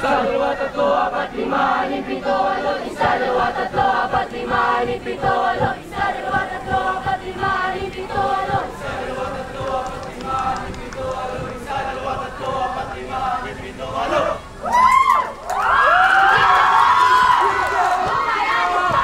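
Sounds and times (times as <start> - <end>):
young voices chanting in unison: 0.0 - 19.0
low thumps: 1.3 - 14.5.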